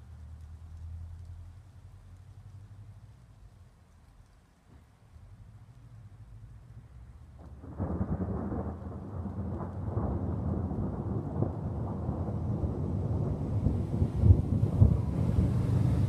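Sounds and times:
thunder rumbling: 7.3 - 16.0.

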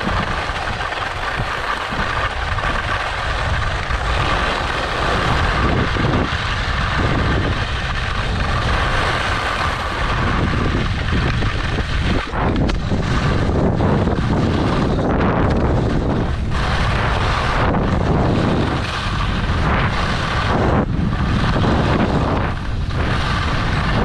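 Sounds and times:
skis scraping over snow: 0.0 - 24.0
wind buffeting microphone: 0.0 - 24.0.

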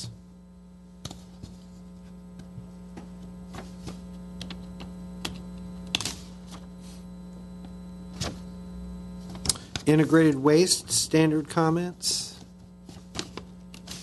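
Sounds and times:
electrical hum: 0.0 - 14.0
paper rustling: 2.9 - 4.2, 12.3 - 14.0.

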